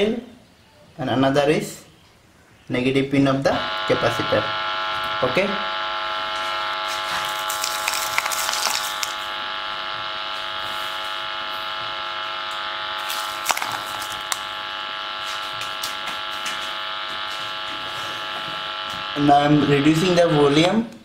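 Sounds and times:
loudspeaker buzzing tone: 0:02.8 - 0:21.0
sand ticking on speaker cone: 0:06.3 - 0:09.4, 0:10.0 - 0:17.8.

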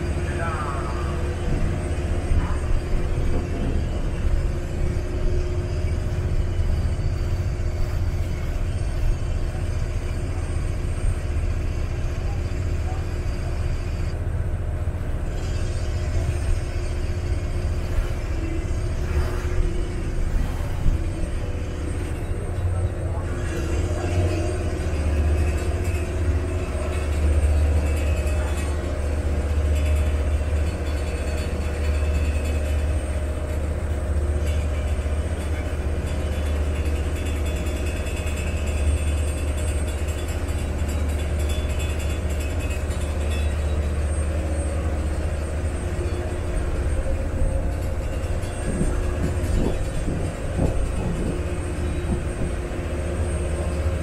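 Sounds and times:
boat diesel engine rumble: 0:00.0 - 0:54.0
water and air hissing: 0:14.9 - 0:24.7.

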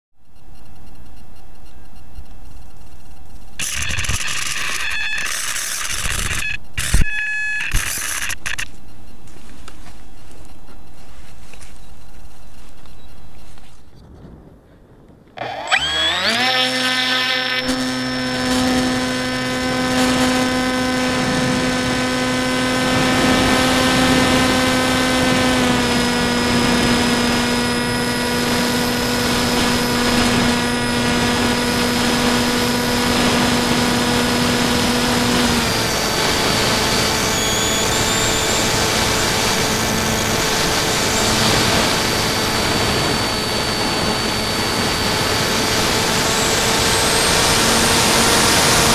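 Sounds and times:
electric motor whining: 0:03.6 - 0:08.8, 0:15.4 - 0:48.9
wind rushing over microphone: 0:12.1 - 0:15.4, 0:17.7 - 0:48.9.

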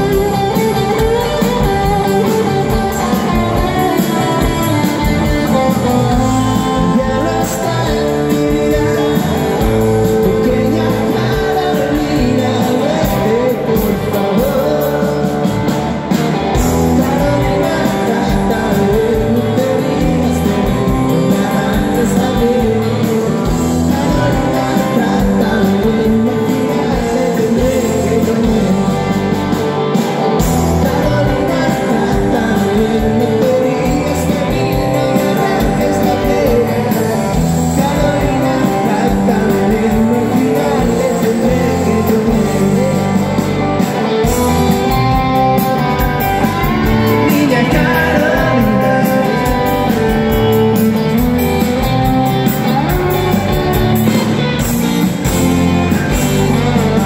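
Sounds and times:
man singing: 0:00.0 - 0:54.3, 0:55.2 - 0:57.0
live rock band playing: 0:00.0 - 0:57.0.

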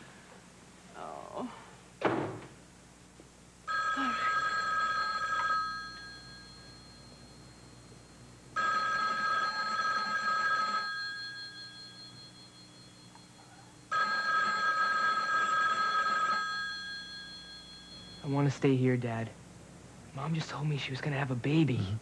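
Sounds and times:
telephone bell ringing: 0:03.7 - 0:18.5.

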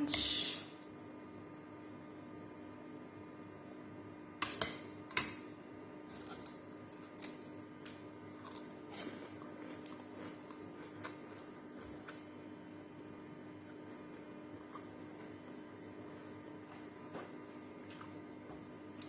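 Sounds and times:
steady low hum: 0:00.0 - 0:19.0
cutlery clinking against glass bowl: 0:04.4 - 0:05.5.

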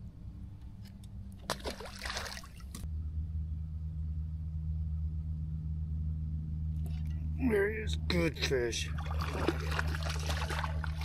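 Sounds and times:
low motor hum: 0:00.0 - 0:11.0
fish splashing into water: 0:01.5 - 0:02.8, 0:09.0 - 0:11.0.

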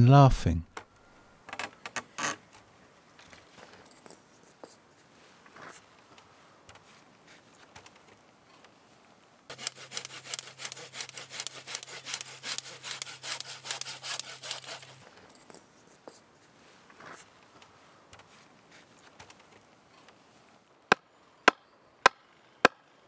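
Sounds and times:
hand saw cutting a branch: 0:09.5 - 0:15.0.

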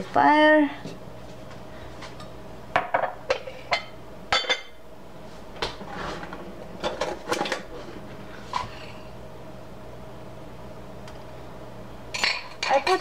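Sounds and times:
metal cookware clinking: 0:12.1 - 0:13.0.

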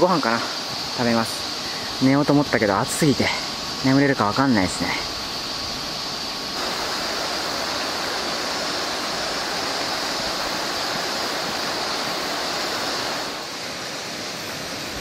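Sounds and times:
river rushing over stones: 0:00.0 - 0:15.0.

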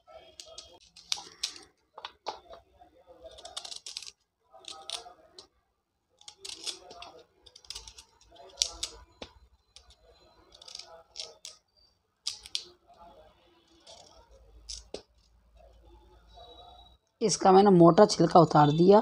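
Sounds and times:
knife scraping vegetable skin: 0:06.3 - 0:08.9.

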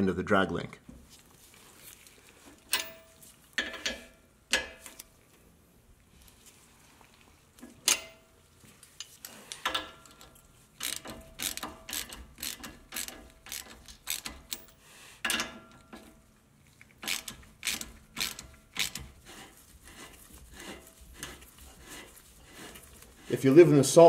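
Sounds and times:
ratchet wrench clicking: 0:10.8 - 0:14.7, 0:17.0 - 0:19.1.

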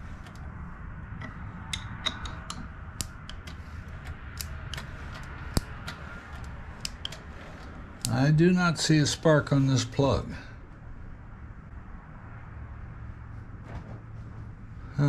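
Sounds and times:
low steady hum: 0:00.0 - 0:15.0
wrench clicking on metal: 0:01.2 - 0:07.2.

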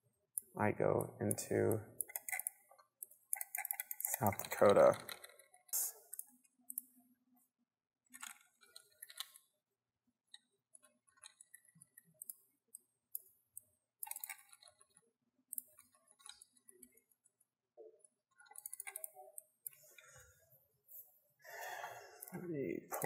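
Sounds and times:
computer keyboard and mouse clicks: 0:00.4 - 0:07.0, 0:08.1 - 0:09.5, 0:10.3 - 0:17.4, 0:18.0 - 0:20.2.

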